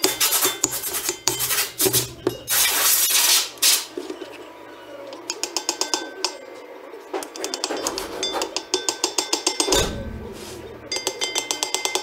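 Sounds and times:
metal tools clinking and scraping: 0:00.0 - 0:04.2, 0:07.2 - 0:12.0.

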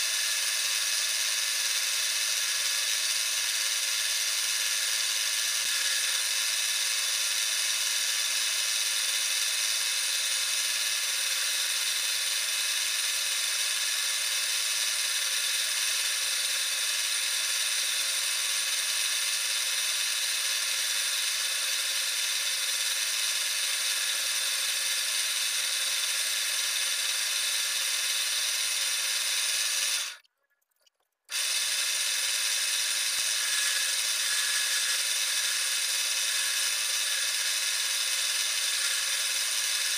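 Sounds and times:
wood lathe whine: 0:00.0 - 0:30.2, 0:31.3 - 0:39.9
turning tool scraping wood: 0:32.9 - 0:39.9.

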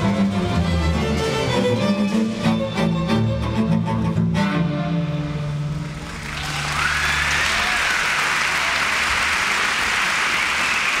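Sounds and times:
string orchestra low chord: 0:00.0 - 0:06.2
audience applause: 0:05.8 - 0:11.0.

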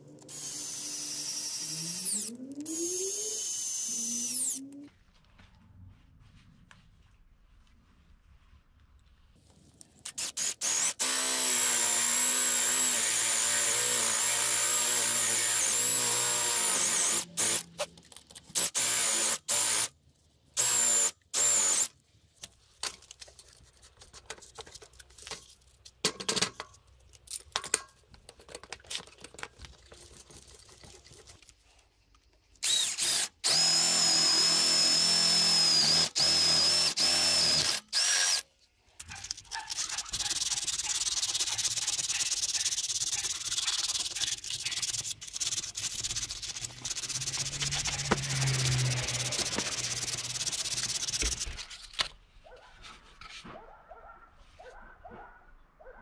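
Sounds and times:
irregular work noises: 0:00.0 - 0:55.4
electric drill whining: 0:00.2 - 0:04.6, 0:10.3 - 0:17.7, 0:18.6 - 0:19.9, 0:20.6 - 0:21.9, 0:32.6 - 0:38.4.

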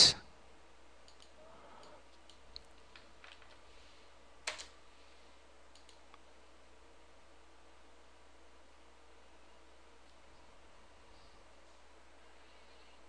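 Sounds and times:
computer mouse and keyboard clicks: 0:01.0 - 0:03.6, 0:04.4 - 0:04.8, 0:05.7 - 0:06.1.

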